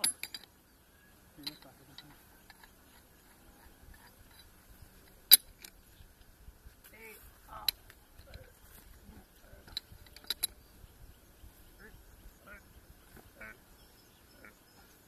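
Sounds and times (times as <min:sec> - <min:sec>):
pipe wrench clinking on metal rod: 0:00.0 - 0:00.5, 0:01.4 - 0:05.8, 0:09.6 - 0:10.6
faint tool handling ticks: 0:01.4 - 0:11.0.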